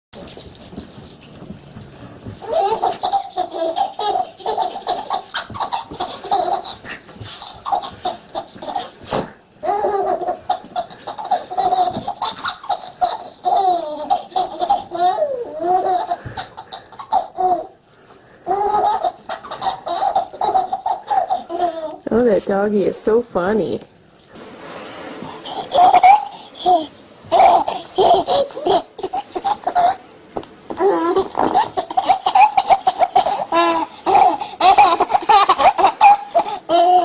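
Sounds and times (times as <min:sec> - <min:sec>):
baby laughing: 0:02.4 - 0:09.0, 0:09.6 - 0:17.8, 0:18.4 - 0:22.0, 0:25.4 - 0:30.0, 0:30.7 - 0:37.0.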